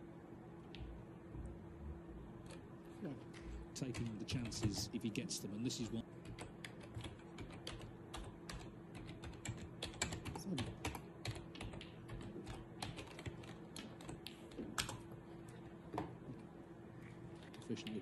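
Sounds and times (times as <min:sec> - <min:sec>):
typing on computer keyboard: 0:03.9 - 0:04.9, 0:06.2 - 0:15.1.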